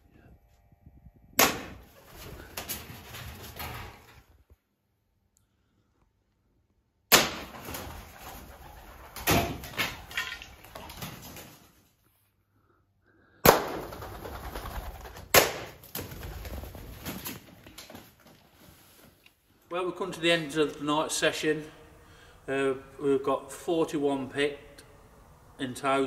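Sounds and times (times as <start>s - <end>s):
pellet strikes: 1.4s - 1.8s, 7.1s - 7.7s
pigeon wings flapping: 1.9s - 4.0s, 7.5s - 11.9s, 13.5s - 18.4s.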